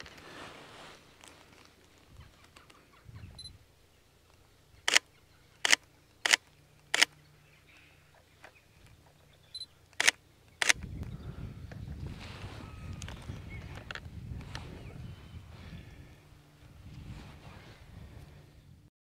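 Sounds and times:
camera shutter clicking: 5.6 - 7.2, 10.0 - 10.8.

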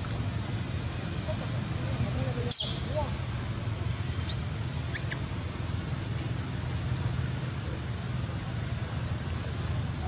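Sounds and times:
low outdoor rumble: 0.0 - 10.0.

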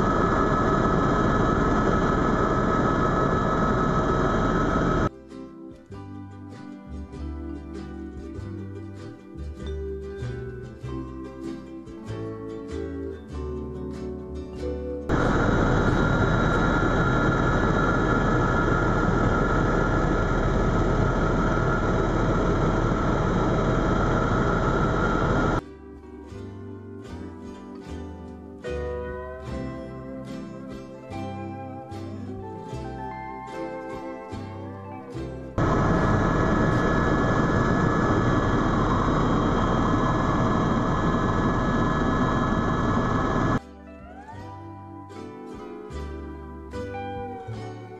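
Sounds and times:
faint high whine: 0.0 - 5.1, 15.0 - 25.6, 31.1 - 43.6
helicopter rotor and turbine noise: 0.0 - 5.1, 15.1 - 25.6, 35.6 - 43.6.

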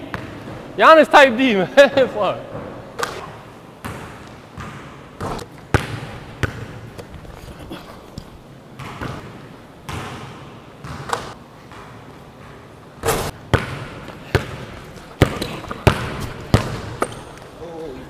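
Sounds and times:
basketball bouncing on wooden floor: 3.8 - 7.2, 8.8 - 17.3.

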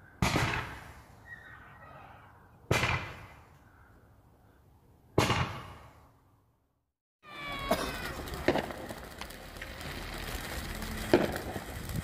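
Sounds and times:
fireworks bangs: 7.2 - 12.0.

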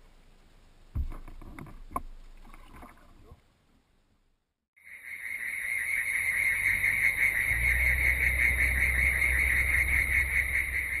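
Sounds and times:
insect chorus pulsing: 4.8 - 11.0.

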